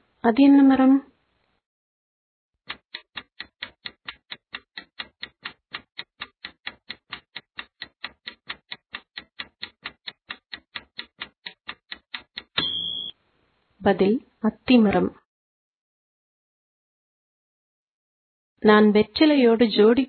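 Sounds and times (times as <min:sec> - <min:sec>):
rapid clock ticks: 0:02.7 - 0:13.0.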